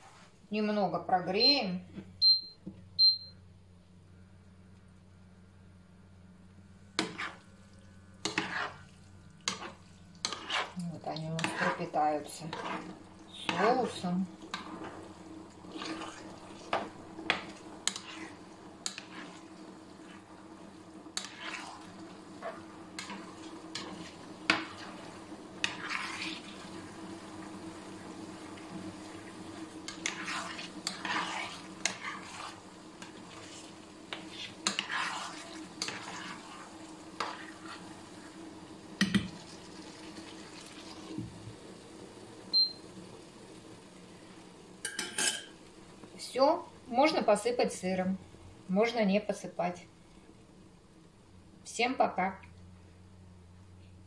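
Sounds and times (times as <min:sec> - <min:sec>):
utensil stirring in frying pan: 0:06.9 - 0:42.0.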